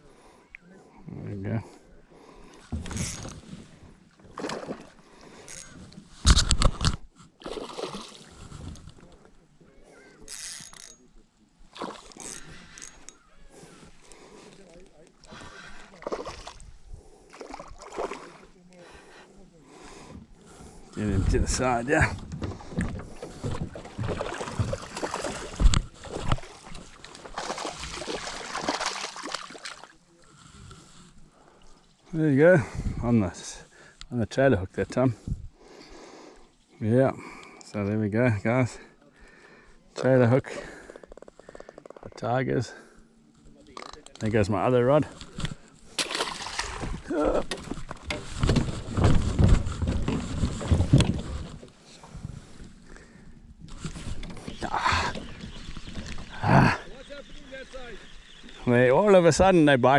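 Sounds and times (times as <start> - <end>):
fish splashing: 4.3 - 5.0, 7.4 - 8.5, 17.3 - 18.5, 22.5 - 30.0, 45.9 - 50.7
camera handling noise: 6.2 - 7.1
footsteps on plastic pontoon: 20.6 - 29.9, 45.2 - 51.8.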